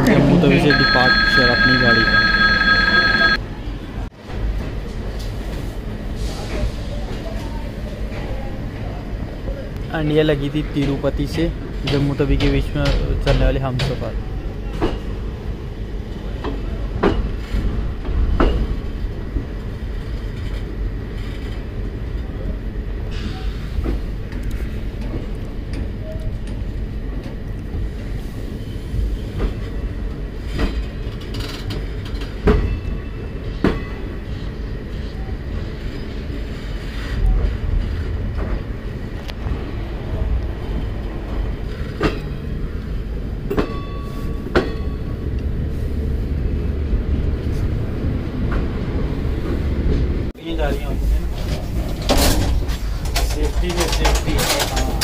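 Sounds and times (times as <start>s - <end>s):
train coaches rumbling: 0.0s - 55.0s
wheels clanking over rail joints: 51.2s - 55.0s.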